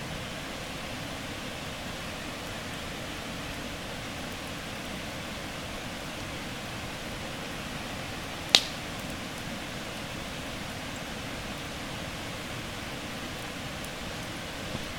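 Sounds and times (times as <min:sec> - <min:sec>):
wood fire hissing: 0:00.0 - 0:14.9
sharp pop from burning logs: 0:08.5 - 0:09.1.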